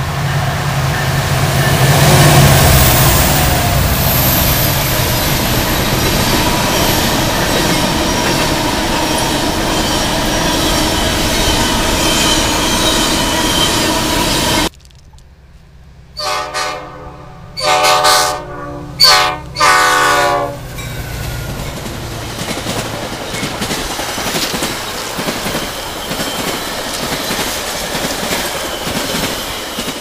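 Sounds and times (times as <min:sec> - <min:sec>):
train wheels rumbling and clattering: 0:00.0 - 0:15.7, 0:20.6 - 0:30.0
locomotive engine hum: 0:00.0 - 0:29.8
diesel locomotive horn blasts: 0:16.2 - 0:21.8.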